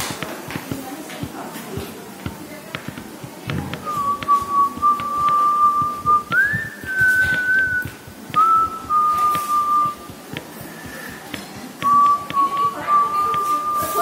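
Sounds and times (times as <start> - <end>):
whistled melody: 3.8 - 10.2, 11.8 - 14.0.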